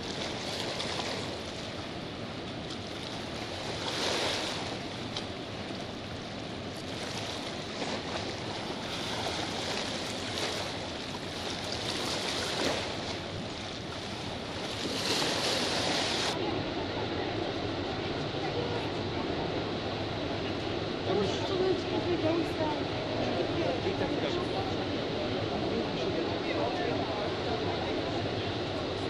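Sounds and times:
waterfall roar: 16.1s - 29.0s.

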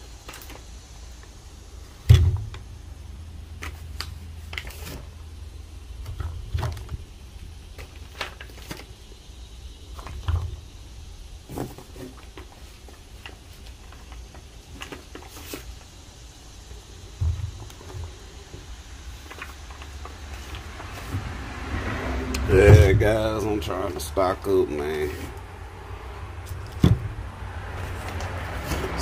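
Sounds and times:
boxes thumping: 2.0s - 2.7s, 17.1s - 18.6s, 22.4s - 23.4s, 26.6s - 27.2s
low steady rumble: 15.7s - 29.0s.

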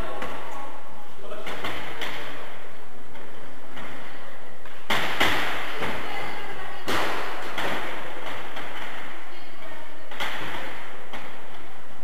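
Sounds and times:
ball struck by bicycle wheel: 4.8s - 6.0s.

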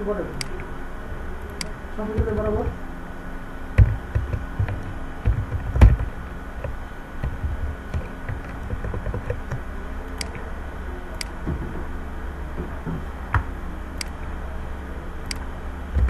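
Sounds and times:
steady low hum: 0.0s - 16.0s
keyboard taps: 3.8s - 9.6s
mouse clicks: 6.6s - 10.4s.

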